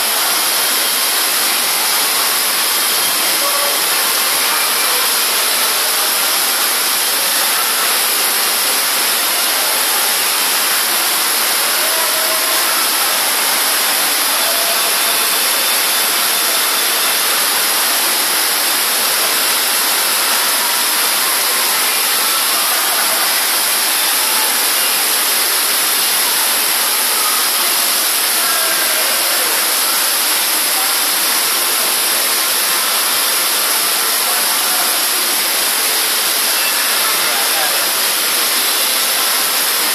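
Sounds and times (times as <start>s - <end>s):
heavy rain on a roof: 0.0s - 39.9s
water pouring onto floor: 0.0s - 39.9s.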